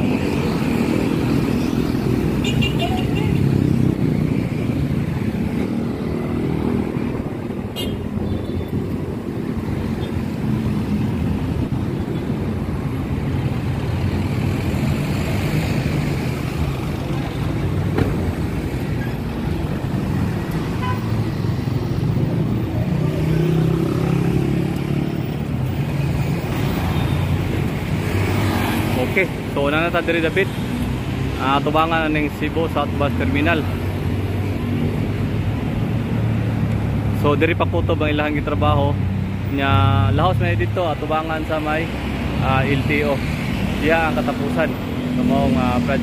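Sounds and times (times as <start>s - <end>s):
motorcycles and cars passing: 0.0s - 46.0s
loud engine passing: 21.3s - 25.6s.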